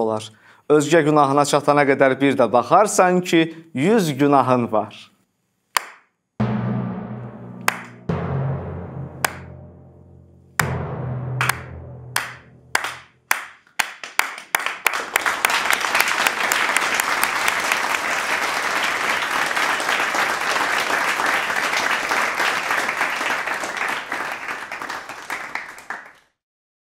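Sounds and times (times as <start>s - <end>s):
audience applause: 12.2s - 26.3s.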